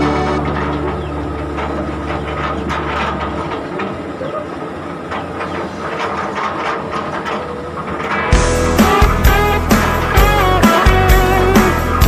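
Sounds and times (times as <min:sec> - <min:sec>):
wooden logs knocking: 0:00.0 - 0:08.5
excavator diesel engine hum: 0:00.0 - 0:12.0.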